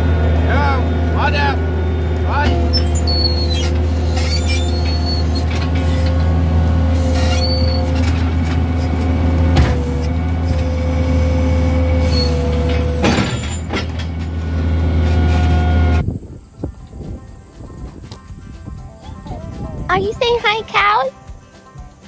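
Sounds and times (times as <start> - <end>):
skid loader engine running: 0.0 - 16.2
metal clanks: 2.4 - 10.8, 11.9 - 15.7.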